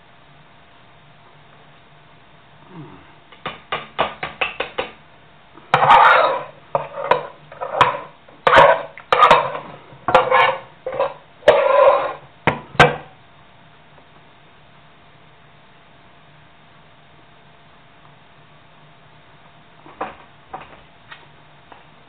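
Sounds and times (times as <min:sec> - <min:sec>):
utensil scraping a pot: 0:05.6 - 0:12.3.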